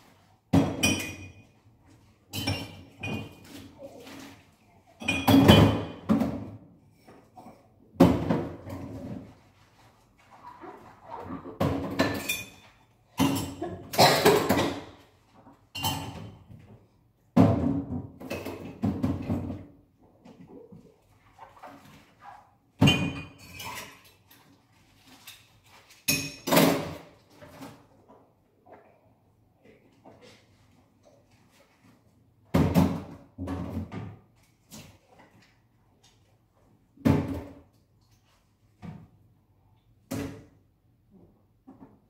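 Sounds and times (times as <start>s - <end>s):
dishes and pots clattering: 0.5s - 1.7s, 2.3s - 9.3s, 11.2s - 16.7s, 17.4s - 20.8s, 22.8s - 27.9s.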